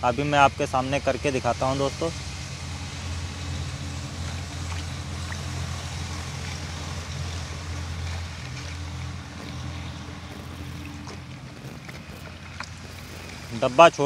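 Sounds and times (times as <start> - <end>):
low motor-like hum: 0.0 - 14.0
liquid sloshing: 3.1 - 14.0
stick stirring liquid in a bucket: 4.2 - 14.0.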